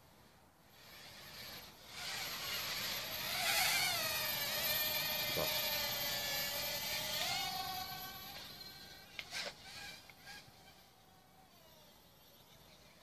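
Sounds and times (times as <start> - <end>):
quadcopter motors whining: 0.6 - 13.0.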